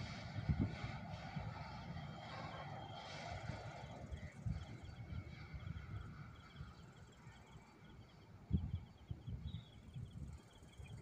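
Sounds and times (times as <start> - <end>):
wind buffeting microphone: 0.0 - 7.1, 7.9 - 11.0
insects chirping: 3.6 - 11.0.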